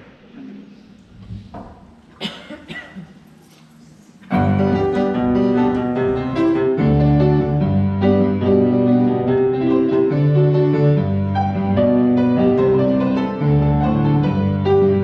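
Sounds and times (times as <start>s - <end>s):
grand piano playing: 4.3s - 15.0s.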